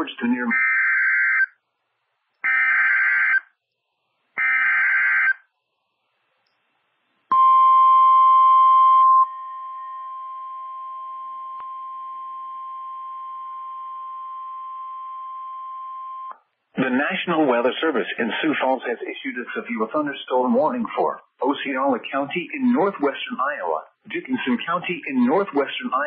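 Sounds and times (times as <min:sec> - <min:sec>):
steady warning alarm tone: 0:02.4 - 0:03.5, 0:04.4 - 0:05.4.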